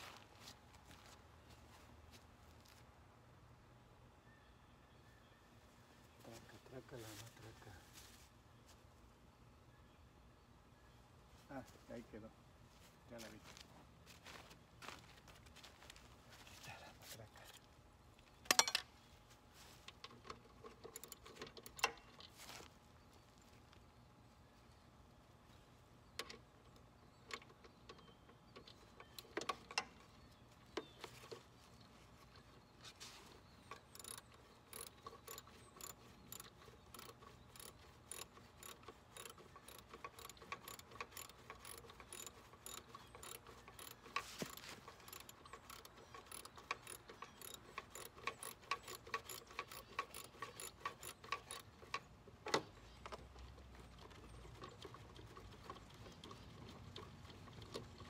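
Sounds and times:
socket ratchet clicking: 0:33.7 - 0:52.0.

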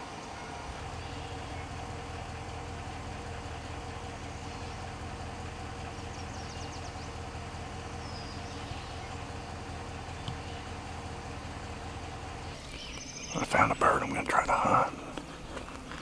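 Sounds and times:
vehicle engine idling: 0:00.0 - 0:16.0
bird trilling: 0:07.9 - 0:10.8, 0:12.3 - 0:14.3.

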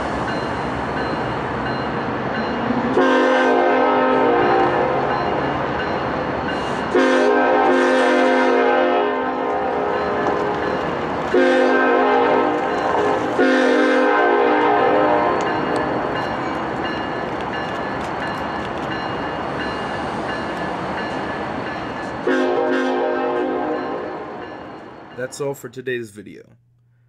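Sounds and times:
train running noise: 0:00.0 - 0:26.2
locomotive air horn blasts: 0:03.0 - 0:05.2, 0:06.9 - 0:10.2, 0:11.3 - 0:15.5, 0:22.2 - 0:24.3.

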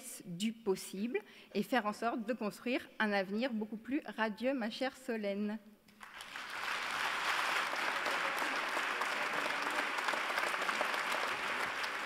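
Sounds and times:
large audience applauding: 0:06.0 - 0:12.0.

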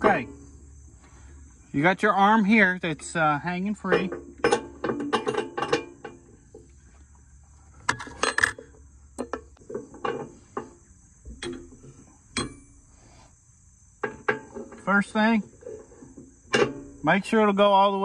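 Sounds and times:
crickets chirring: 0:00.0 - 0:18.0
metal arm clinking against hitch: 0:03.0 - 0:06.7, 0:07.8 - 0:12.9.

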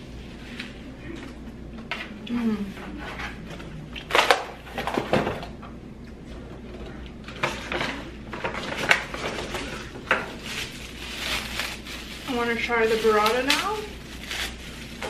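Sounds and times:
cardboard packaging rustling: 0:07.3 - 0:15.0.

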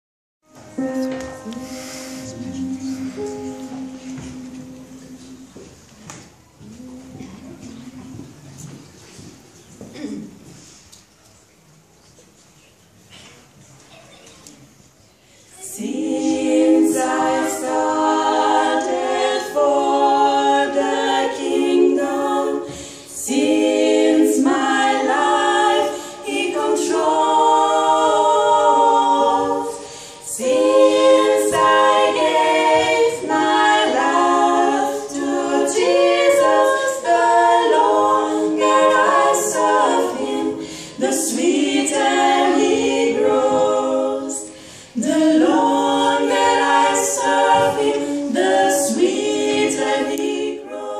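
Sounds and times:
women singing a cappella: 0:01.4 - 0:08.7, 0:15.4 - 0:50.9.

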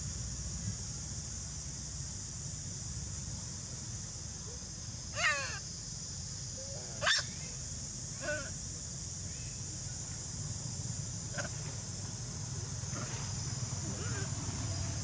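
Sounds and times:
insects droning: 0:00.0 - 0:15.0
monkey calls: 0:05.2 - 0:05.6, 0:07.0 - 0:07.4.

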